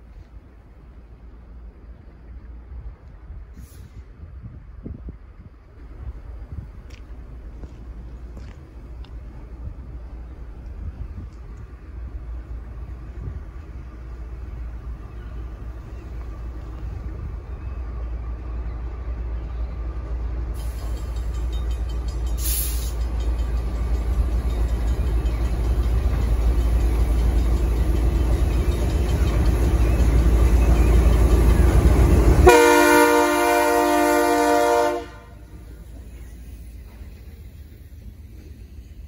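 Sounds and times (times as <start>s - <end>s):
diesel locomotive engine rumble: 0.0s - 39.0s
locomotive horn blast: 32.2s - 35.5s.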